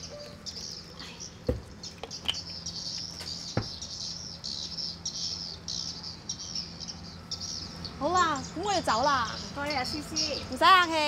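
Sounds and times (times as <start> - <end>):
high chirping calls: 0.0 - 11.0
footsteps on wooden deck: 3.0 - 3.9.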